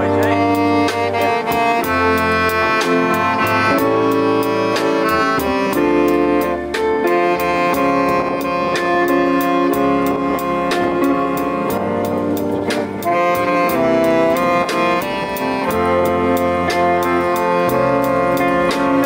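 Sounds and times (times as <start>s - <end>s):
bass line: 0.0s - 19.0s
saxophone jazz ballad melody: 0.0s - 19.0s
steady drum beat: 0.0s - 19.0s.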